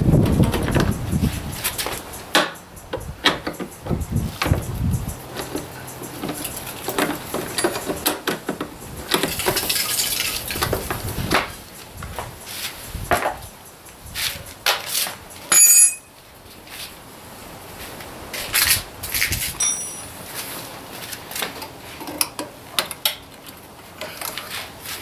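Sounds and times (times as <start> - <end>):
loud metallic ring: 15.5 - 16.1, 19.6 - 20.2.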